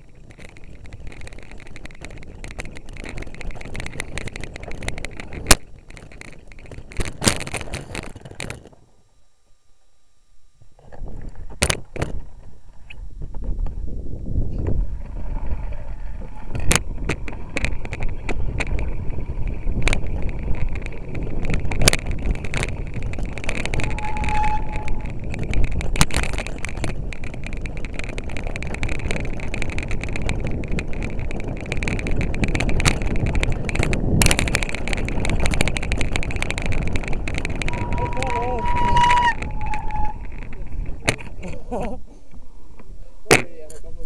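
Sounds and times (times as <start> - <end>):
bike knocking on bumps: 0.0 - 8.8, 14.6 - 41.4
mountain bike rattling: 0.0 - 8.9, 10.8 - 44.0
wind buffeting microphone: 10.9 - 42.4
brief squeal: 23.8 - 25.0, 37.7 - 40.2.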